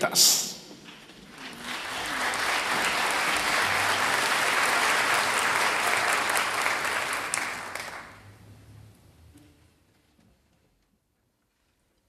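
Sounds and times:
audience applauding: 0:01.2 - 0:08.5.

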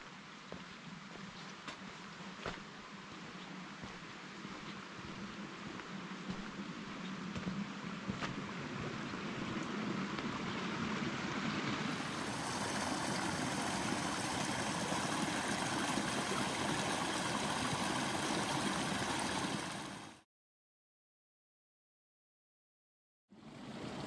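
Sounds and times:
creek water rushing: 0:00.1 - 0:20.2.

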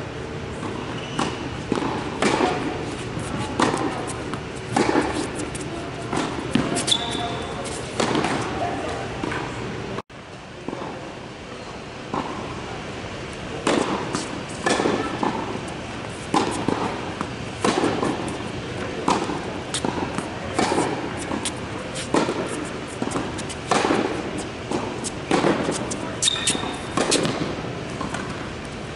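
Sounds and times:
tennis ball hits echoing: 0:01.2 - 0:05.2, 0:13.6 - 0:15.5, 0:22.1 - 0:25.9.

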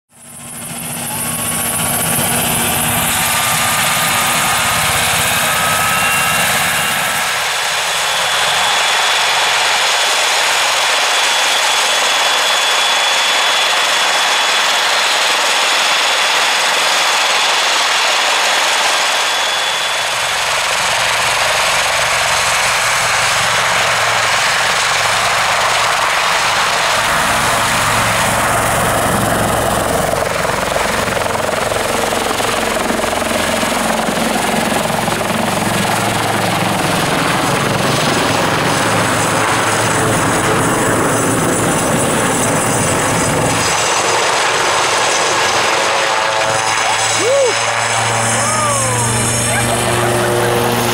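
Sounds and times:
helicopter turbine and rotors: 0:00.1 - 0:50.9
thin high whistle: 0:03.2 - 0:09.9, 0:19.0 - 0:20.4.

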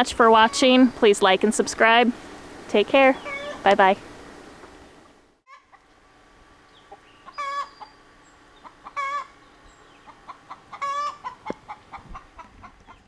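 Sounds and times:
chickens wavering calls: 0:03.1 - 0:03.8, 0:05.5 - 0:06.0, 0:06.6 - 0:13.0
soft chicken clucks: 0:06.8 - 0:08.0, 0:08.6 - 0:13.0.

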